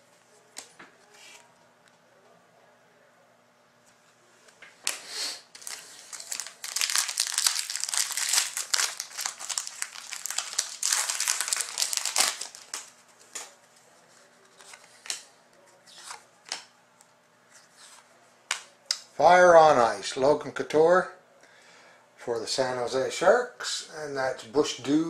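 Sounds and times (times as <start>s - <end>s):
foil wrapper crinkling and tearing: 5.5s - 13.5s
cards rustling: 5.6s - 16.7s.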